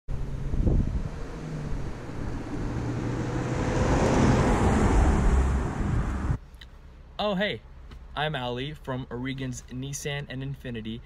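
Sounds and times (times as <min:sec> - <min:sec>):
car driving past: 0:00.2 - 0:06.4.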